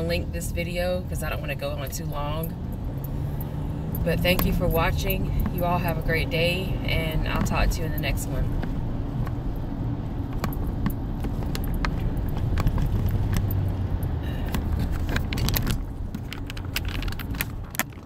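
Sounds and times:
phone handling clicks and rattles: 14.5s - 18.0s.

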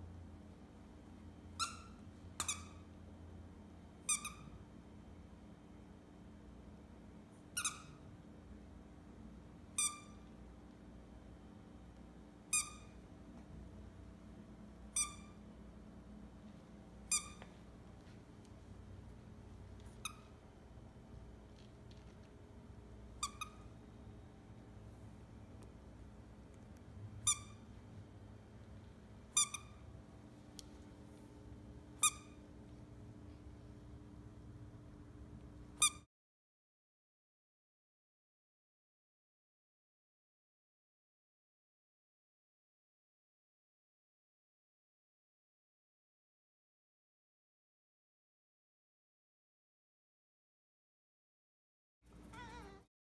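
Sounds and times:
dog toy squeaking: 1.5s - 2.9s, 4.0s - 4.6s, 7.5s - 8.1s, 9.8s - 10.3s, 12.5s - 13.0s, 14.9s - 15.4s, 17.0s - 17.6s, 19.8s - 20.4s, 23.1s - 23.8s, 27.2s - 27.7s, 29.3s - 29.8s, 32.0s - 32.4s, 35.8s - 36.1s, 52.2s - 52.8s.

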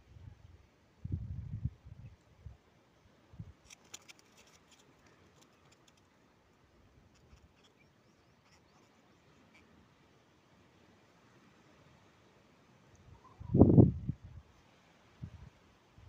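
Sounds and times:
fishing line clicks and rustles: 3.5s - 6.3s, 7.0s - 7.8s.

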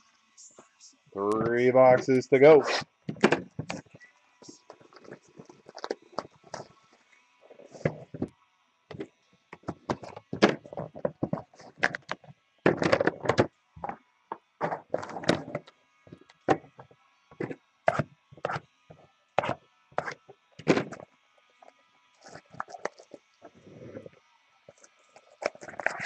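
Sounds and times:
boxes knocking and scraping: 3.1s - 3.9s, 8.9s - 14.0s, 14.6s - 16.8s.

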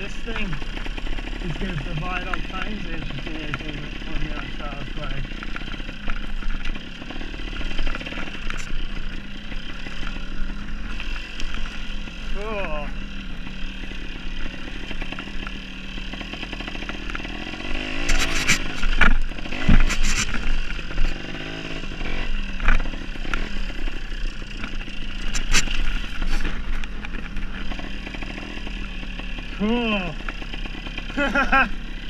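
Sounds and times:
dirt bike engine revving: 0.0s - 32.0s
sharp knocks and clatters: 14.4s - 21.2s.

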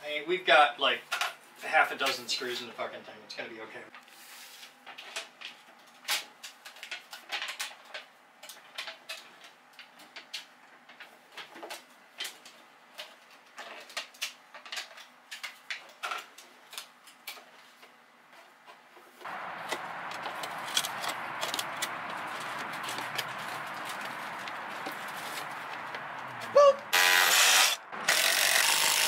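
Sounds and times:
foil tape crinkling: 19.3s - 29.0s.

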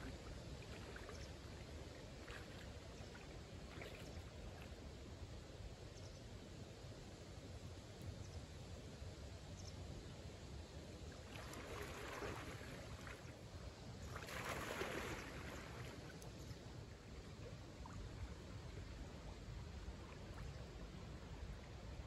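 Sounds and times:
water splashing from swimmer: 11.2s - 13.3s, 14.0s - 16.3s.

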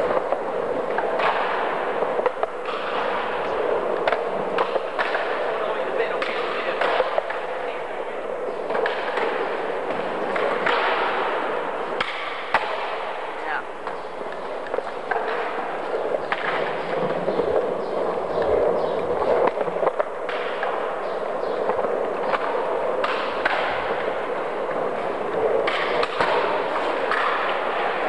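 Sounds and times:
skateboard wheels rolling on tile: 0.0s - 28.0s.

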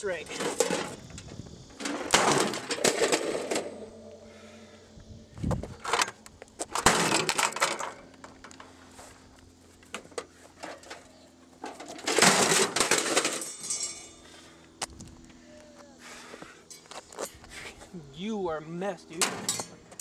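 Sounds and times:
metal and glass crashing on asphalt: 1.8s - 3.7s, 6.7s - 8.1s, 11.6s - 14.2s.

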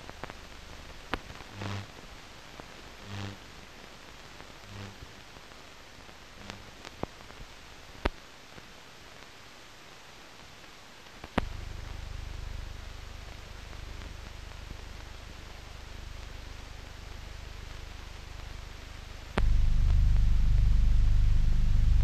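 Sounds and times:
film soundtrack hiss and crackle: 0.0s - 22.0s
steady low hum: 11.4s - 22.0s.

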